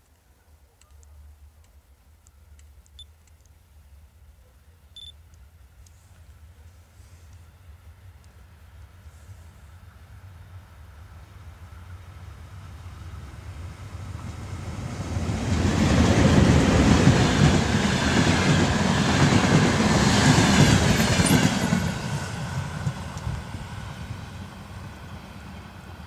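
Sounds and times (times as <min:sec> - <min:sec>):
train rumble and wheel clatter: 0:05.4 - 0:26.0.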